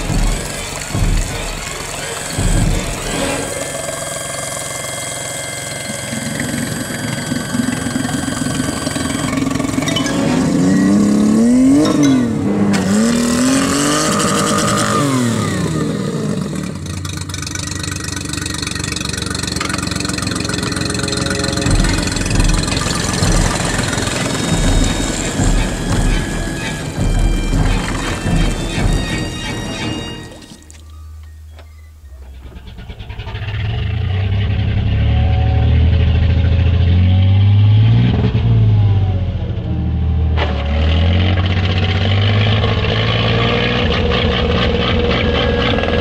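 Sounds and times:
water churning: 0:00.0 - 0:10.7, 0:16.5 - 0:31.0
outboard motor revving: 0:00.0 - 0:30.8, 0:32.3 - 0:38.8, 0:40.4 - 0:46.0.

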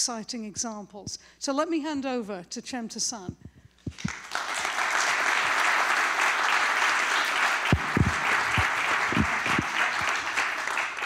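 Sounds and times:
low thumps: 0:03.3 - 0:04.2, 0:07.7 - 0:09.7
audience applauding: 0:03.9 - 0:11.0.

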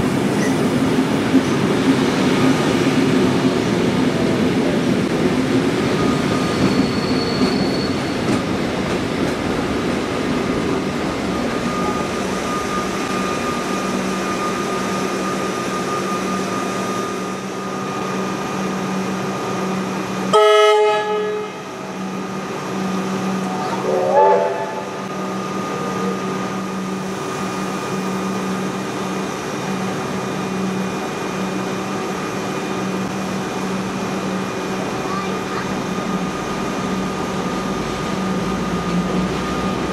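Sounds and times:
train wheels rolling: 0:00.0 - 0:19.9
train horn: 0:20.3 - 0:21.7, 0:23.8 - 0:24.9.

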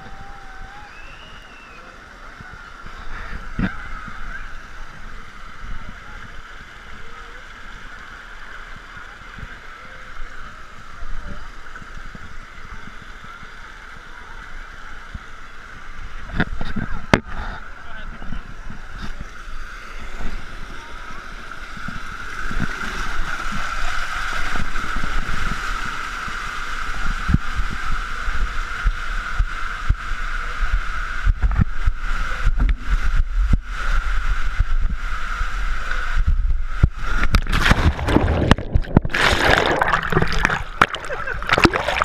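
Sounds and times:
water rushing through slide tube: 0:00.0 - 0:42.0
underwater bubbling: 0:36.8 - 0:42.0
splash into pool: 0:37.1 - 0:42.0.

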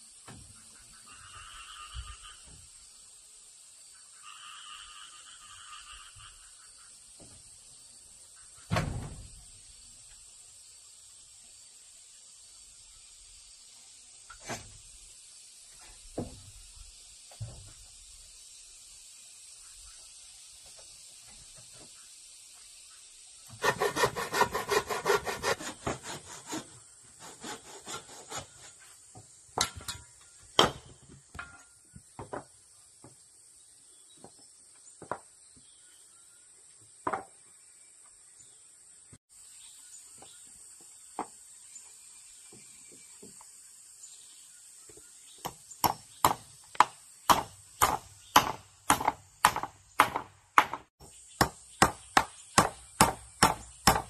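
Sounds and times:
hand saw cutting wood: 0:23.5 - 0:28.9, 0:47.3 - 0:50.8.

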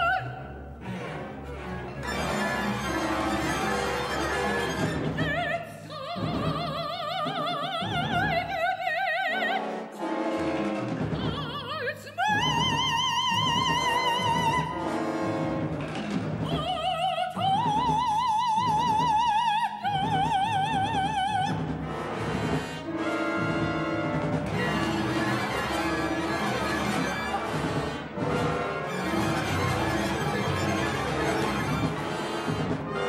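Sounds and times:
orchestral accompaniment: 0:00.0 - 0:07.0, 0:08.0 - 0:17.0, 0:19.9 - 0:33.0.

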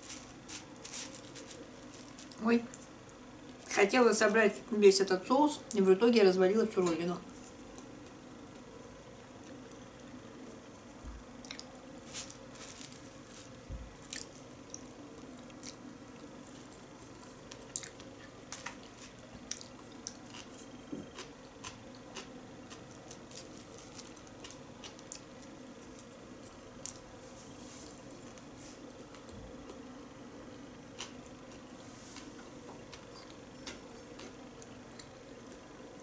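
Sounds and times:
wet chewing: 0:14.0 - 0:15.8, 0:19.4 - 0:23.2.

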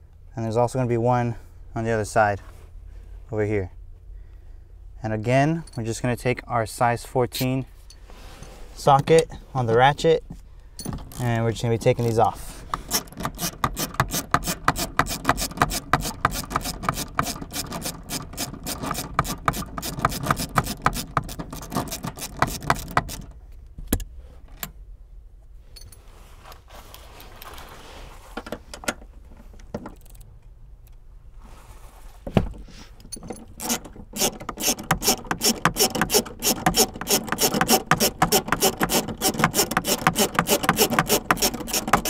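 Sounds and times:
hand ratchet clicking rapidly: 0:12.8 - 0:23.3, 0:33.6 - 0:42.0.

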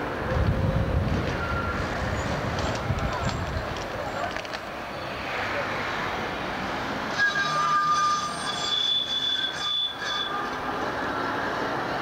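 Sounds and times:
tram rolling: 0:00.0 - 0:12.0
tram wheels squealing: 0:01.2 - 0:04.3, 0:07.0 - 0:12.0.

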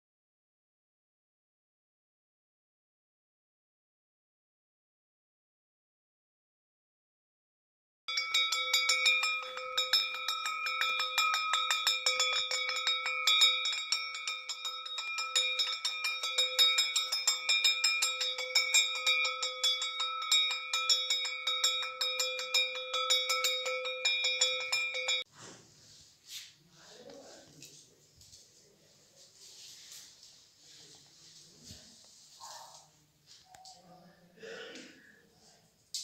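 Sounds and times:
metal bell ringing rapidly: 0:08.1 - 0:25.3.

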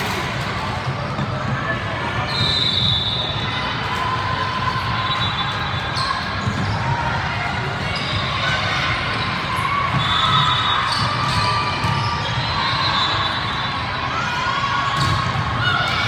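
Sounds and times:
crowd chatter: 0:00.0 - 0:16.0
sneakers squeaking on court floor: 0:05.0 - 0:07.1, 0:07.8 - 0:13.7.

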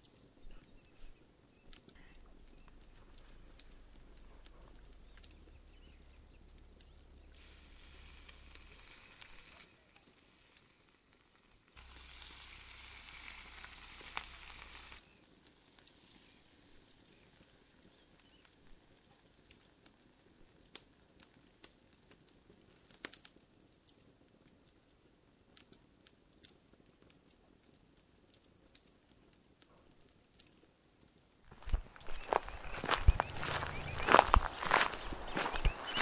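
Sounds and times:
bread sizzling in a greasy pan: 0:07.3 - 0:23.3.

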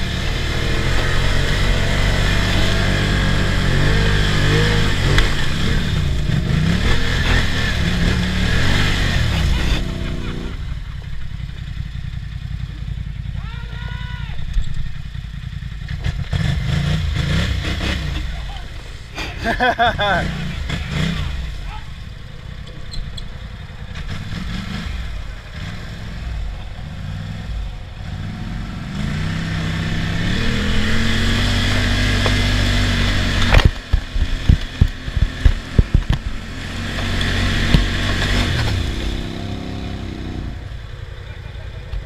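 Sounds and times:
atv engine revving: 0:00.0 - 0:42.0
sharp knocks and clatter: 0:33.3 - 0:39.2.

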